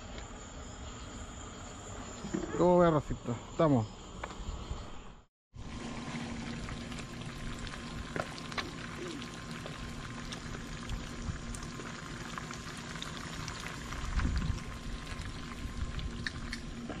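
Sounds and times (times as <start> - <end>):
oil sizzling and crackling: 5.6 - 17.0.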